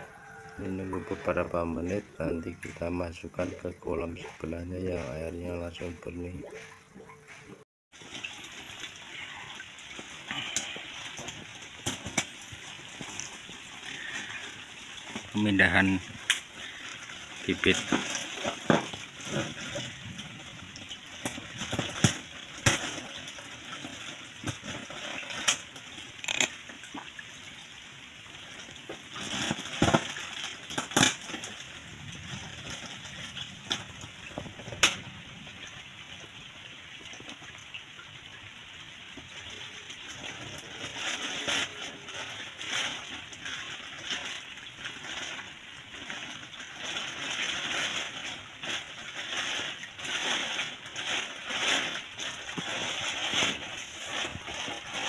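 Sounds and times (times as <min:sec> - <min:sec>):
pond water sloshing and splashing: 0:00.0 - 0:55.0
plastic bag crinkling: 0:40.2 - 0:55.0.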